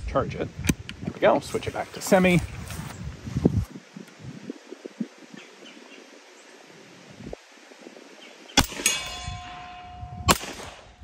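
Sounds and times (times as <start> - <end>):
gunshot: 10.3 - 10.9.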